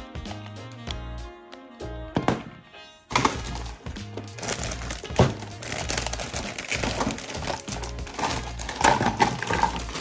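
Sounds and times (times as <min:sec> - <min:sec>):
background music with bass: 0:00.0 - 0:10.0
plastic bag crinkling: 0:03.1 - 0:10.0
plastic toy parts handled: 0:04.4 - 0:10.0.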